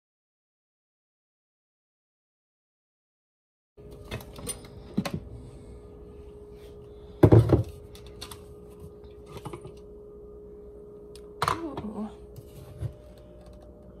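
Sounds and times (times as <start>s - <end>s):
steady low hum: 3.8s - 14.0s.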